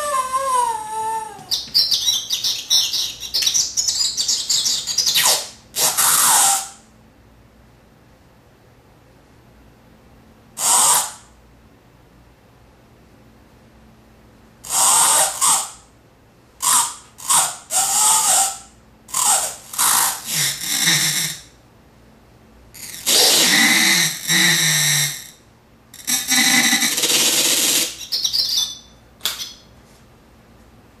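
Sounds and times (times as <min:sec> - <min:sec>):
glitched toy nature sounds: 0:26.0 - 0:29.6.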